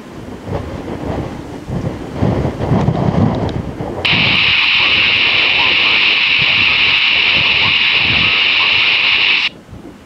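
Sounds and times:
faint jet engine rumble: 0.0s - 10.0s
radio static hiss: 4.1s - 9.6s.

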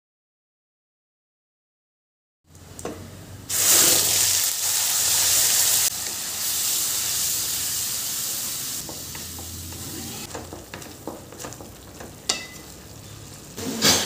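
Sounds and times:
loud sizzle of paste in oil: 3.5s - 14.0s
spices sizzling in hot oil: 3.5s - 14.0s
wooden spatula scraping: 8.8s - 13.9s.

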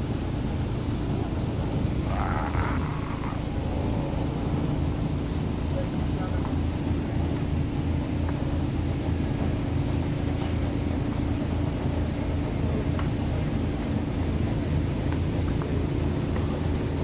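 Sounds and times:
boat engine idling: 0.0s - 17.0s.

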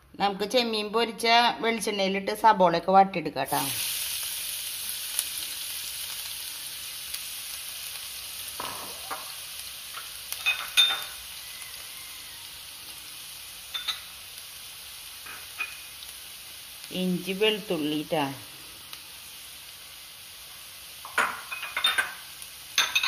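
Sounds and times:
onions sizzling in a pan: 3.5s - 23.0s.

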